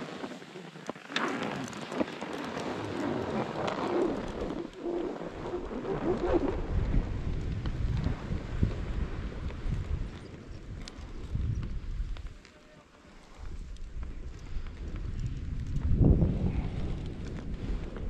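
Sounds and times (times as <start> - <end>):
wind buffeting microphone: 2.9 - 12.4, 13.3 - 18.0.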